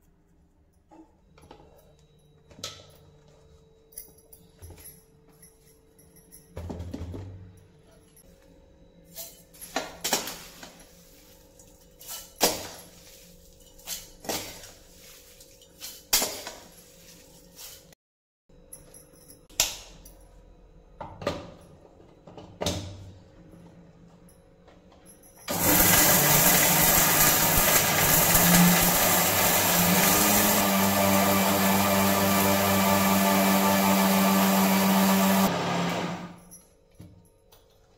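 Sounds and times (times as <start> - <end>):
electric grinder running: 25.5 - 36.4.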